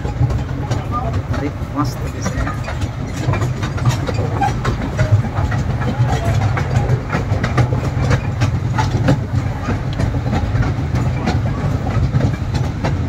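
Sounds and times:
toy train rumbling and rattling: 0:00.0 - 0:13.0.

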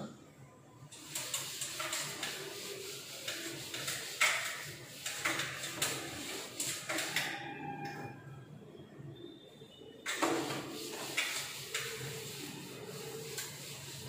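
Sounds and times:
cloth wiping a chalkboard: 0:01.0 - 0:07.4, 0:10.1 - 0:14.0.

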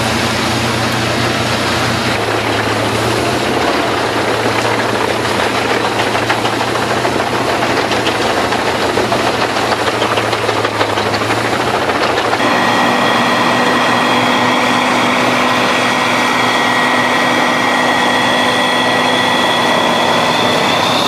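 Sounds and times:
wood chipper engine drone: 0:00.0 - 0:21.0
crackle of snapping wood: 0:02.1 - 0:12.4.

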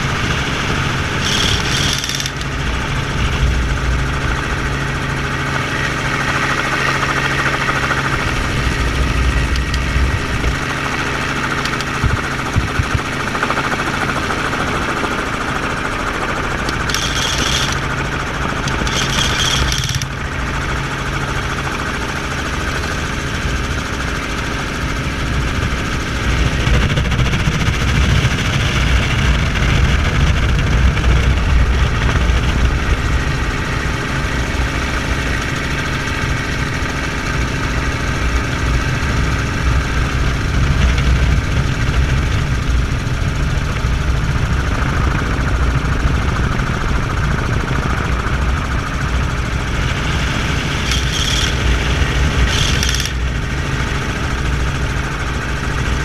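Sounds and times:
helicopter engine and rotor: 0:00.0 - 0:56.0
high-pitched bursts: 0:01.2 - 0:02.4, 0:16.7 - 0:17.8.

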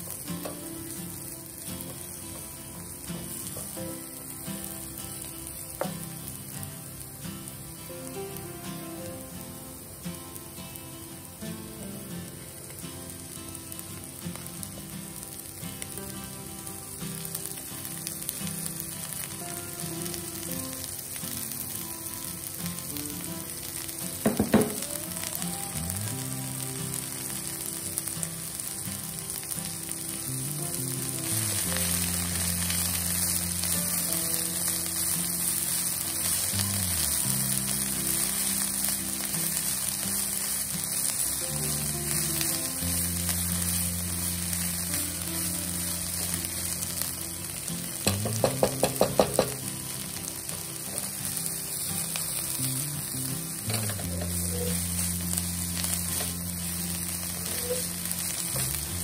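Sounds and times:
spatula stir-frying in pan: 0:00.0 - 0:08.8, 0:09.4 - 0:59.0
leaves sizzling in hot oil: 0:00.0 - 0:59.0
knock: 0:24.3 - 0:24.8, 0:48.1 - 0:49.6.

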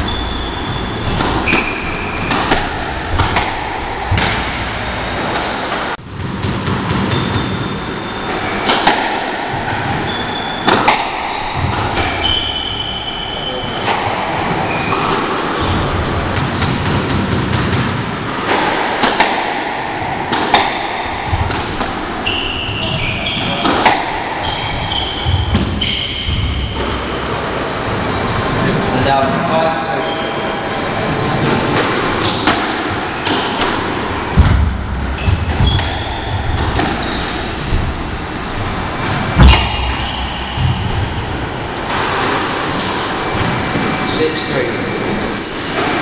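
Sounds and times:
squash ball cracks: 0:01.0 - 0:07.5, 0:08.6 - 0:09.6, 0:10.6 - 0:12.6, 0:14.9 - 0:22.5, 0:23.5 - 0:25.8, 0:31.8 - 0:37.3, 0:39.0 - 0:44.1
shoes squeaking on wooden floor: 0:09.6 - 0:16.8, 0:22.2 - 0:23.7, 0:24.4 - 0:27.1, 0:29.9 - 0:31.8, 0:35.1 - 0:41.3.

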